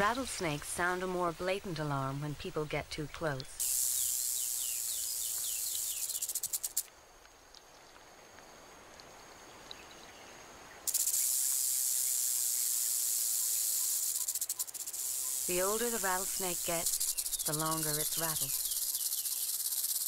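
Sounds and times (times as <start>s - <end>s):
rattlesnake tail rattling: 3.6s - 6.9s, 10.9s - 20.0s.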